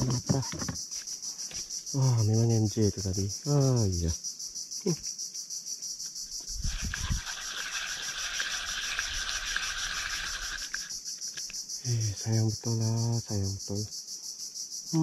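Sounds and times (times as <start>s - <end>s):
high-pitched insect chorus: 0.0s - 15.0s.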